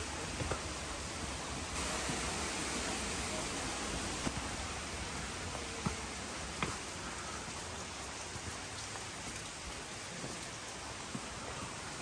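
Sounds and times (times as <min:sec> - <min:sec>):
waterfall rushing: 0:01.6 - 0:08.2.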